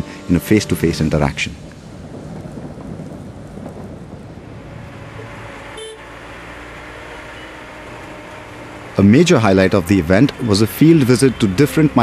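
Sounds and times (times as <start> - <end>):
city street traffic rumble: 0.0 - 12.0
vehicle horn toot: 5.8 - 6.1.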